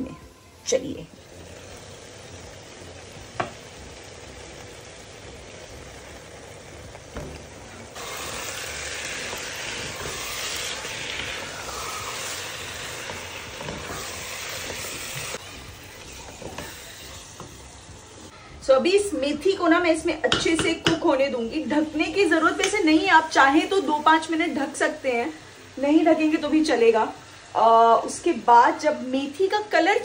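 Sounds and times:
gravy sizzling in a pan: 0.0 - 18.4, 19.1 - 30.0
wooden spatula stirring: 9.1 - 18.1.

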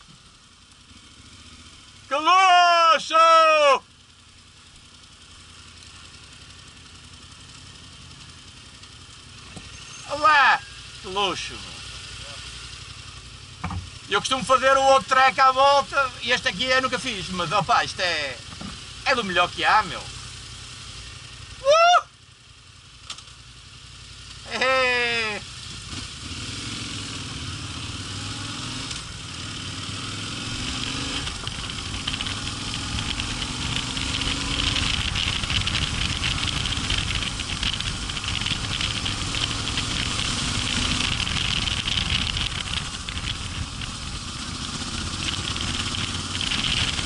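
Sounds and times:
motorcycle engine running: 0.0 - 47.0
tyres on gravel: 31.2 - 47.0
wind noise: 31.2 - 47.0.

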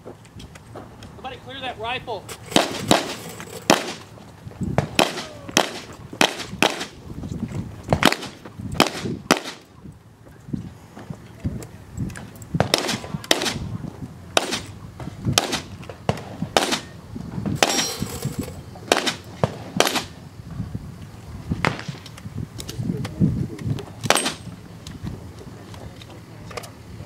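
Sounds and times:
gunshots: 2.5 - 4.0, 4.8 - 6.9, 12.6 - 13.6, 14.4 - 14.7, 15.4 - 16.9, 17.6 - 20.1, 24.1 - 24.4.

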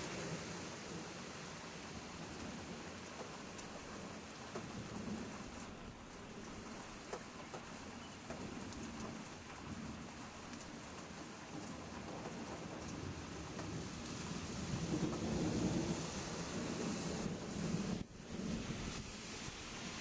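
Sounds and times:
steady rain: 0.0 - 20.0.

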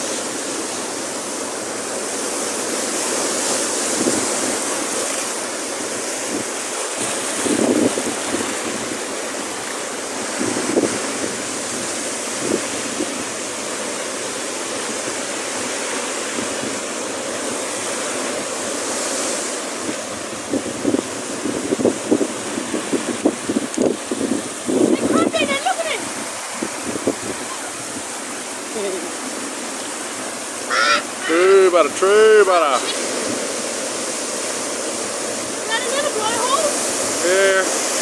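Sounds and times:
surf breaking against rocks: 0.0 - 38.0
water streaming off rocks: 0.0 - 38.0
wind buffeting microphone: 5.8 - 30.6.

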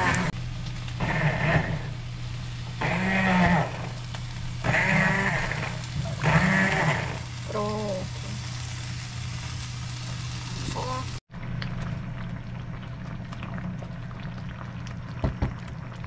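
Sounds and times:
immersion blender motor whining: 0.0 - 0.3, 1.0 - 1.9, 2.8 - 8.4.

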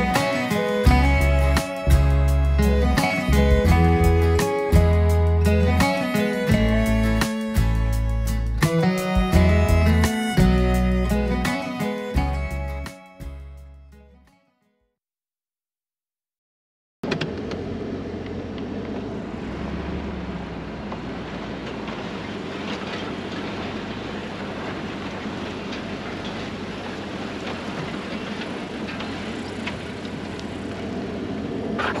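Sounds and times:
vehicle engine and tyre noise: 17.0 - 32.0.

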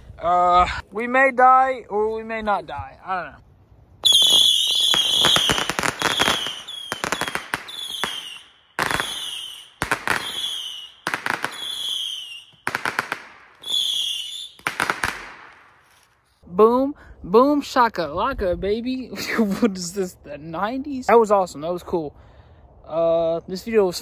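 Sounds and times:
whistling rockets: 4.0 - 15.7
firework cracks and pops: 4.0 - 16.2.

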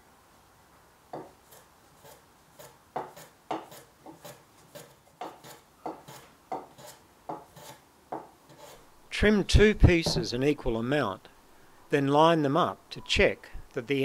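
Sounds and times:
hand plane scraping wood: 1.2 - 7.8, 8.5 - 8.9.

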